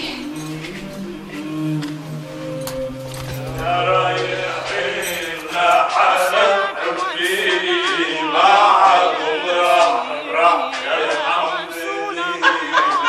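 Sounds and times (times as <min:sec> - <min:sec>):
low held note: 0:00.0 - 0:06.4
male voices singing a chant: 0:00.0 - 0:13.0.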